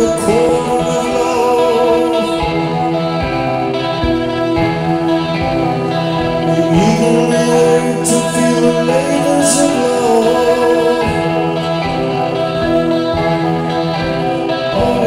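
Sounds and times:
man singing: 0.0 - 3.6, 6.0 - 13.4, 14.5 - 15.0
electric guitar: 0.0 - 15.0
live rock band: 0.0 - 15.0.

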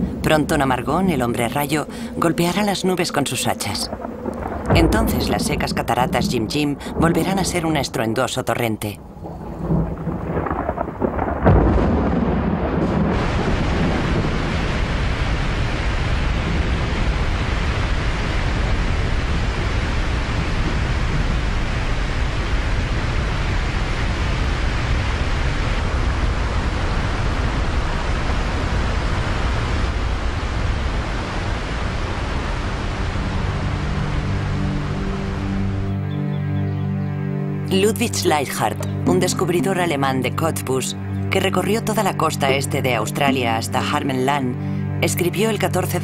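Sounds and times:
rushing water: 0.0 - 36.0
thunderclap: 3.5 - 8.0, 9.0 - 27.8.

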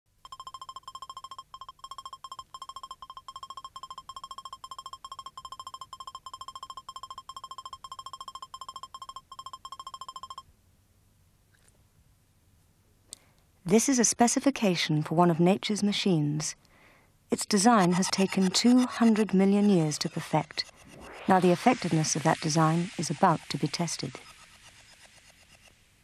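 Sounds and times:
rapid short high beeps: 0.3 - 10.4, 17.4 - 24.9.

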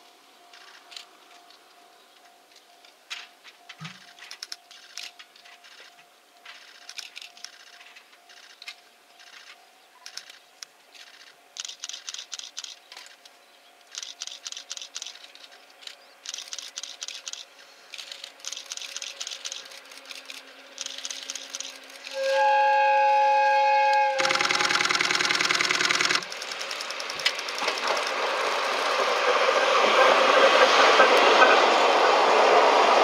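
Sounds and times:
train whistle blast: 22.1 - 24.8.

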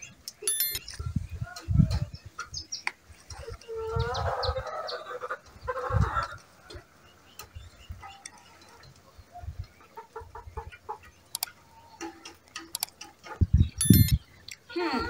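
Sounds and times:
chickens clucking: 1.0 - 14.7
light clicks: 11.3 - 11.6, 12.6 - 13.1.

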